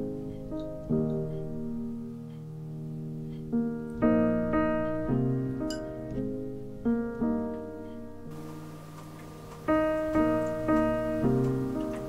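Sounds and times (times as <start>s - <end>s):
soft piano music: 0.0s - 12.0s.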